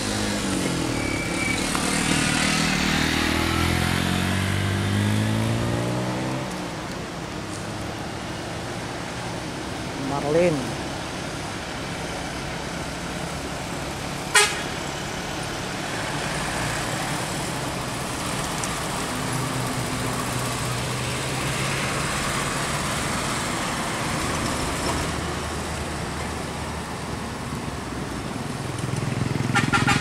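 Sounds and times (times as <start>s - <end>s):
bus diesel engine running: 6.7s - 30.0s.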